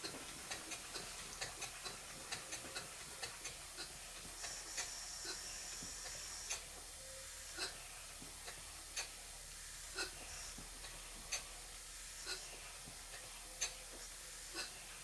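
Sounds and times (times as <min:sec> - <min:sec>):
model steam engine ticking: 0:00.0 - 0:06.7
thin steady steam hiss: 0:00.0 - 0:15.0.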